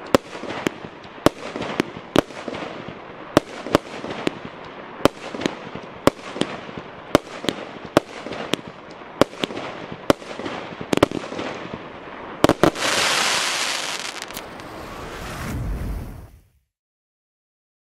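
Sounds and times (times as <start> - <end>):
firework bangs: 0.0 - 16.4
firework bursts rushing noise: 12.4 - 16.6.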